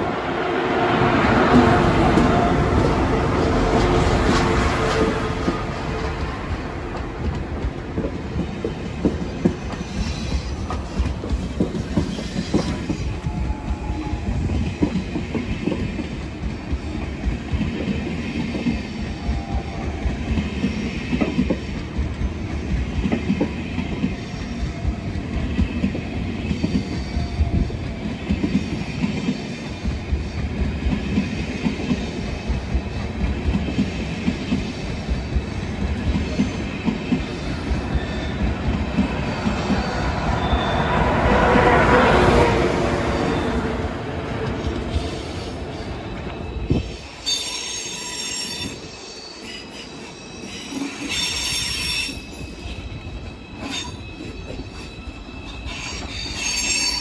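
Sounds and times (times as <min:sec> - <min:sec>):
train wheels clattering on rails: 0:01.0 - 0:57.0
faint high wheel squeal: 0:09.6 - 0:11.1, 0:36.3 - 0:43.8, 0:44.6 - 0:57.0.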